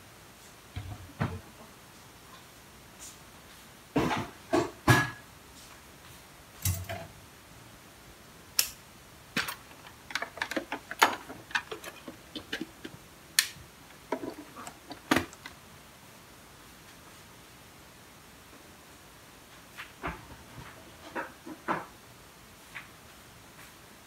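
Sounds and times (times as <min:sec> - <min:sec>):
kitchen items clattering: 0:04.0 - 0:05.2, 0:06.6 - 0:07.2, 0:09.4 - 0:13.1, 0:13.9 - 0:15.6.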